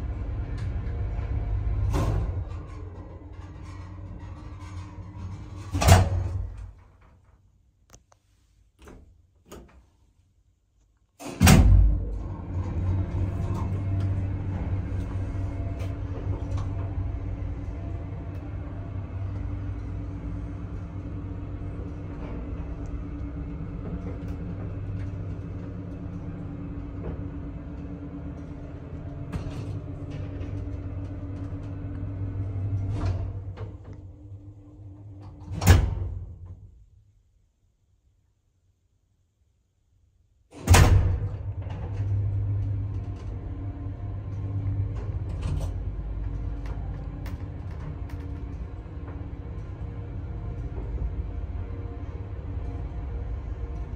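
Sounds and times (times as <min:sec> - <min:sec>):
lift hum and rumble: 0:00.0 - 0:10.7, 0:11.4 - 0:37.8, 0:40.6 - 0:53.9
light clicks and rattles: 0:44.2 - 0:51.2.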